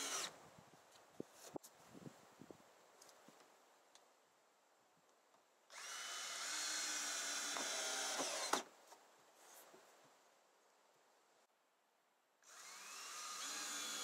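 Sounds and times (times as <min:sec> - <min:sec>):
cordless drill whine: 0:00.0 - 0:00.3, 0:05.7 - 0:08.7, 0:12.4 - 0:14.0
faint background hiss: 0:00.0 - 0:06.5, 0:08.4 - 0:12.6.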